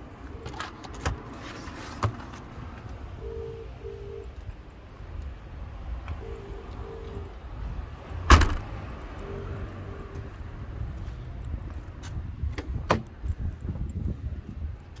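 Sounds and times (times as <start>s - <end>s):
short low beeps: 3.2s - 4.3s, 6.2s - 7.3s, 9.2s - 10.3s
car boot clicks and knocks: 8.3s - 8.7s, 12.5s - 13.1s.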